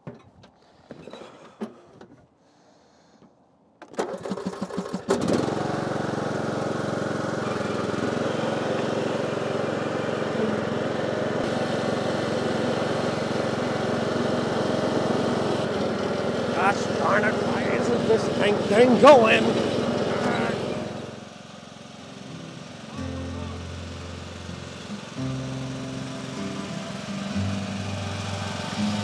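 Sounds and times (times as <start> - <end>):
lawn mower engine starting: 3.8 - 29.0.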